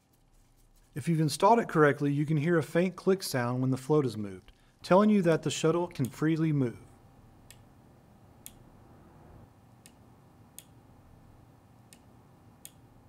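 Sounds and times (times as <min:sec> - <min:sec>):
faint switch clicks: 0:11.9 - 0:12.8.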